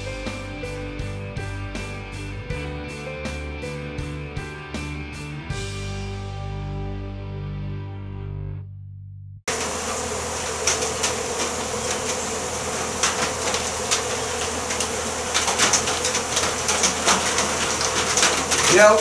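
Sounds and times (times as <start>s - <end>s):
honey bees buzzing: 0.0s - 2.0s, 9.5s - 19.0s.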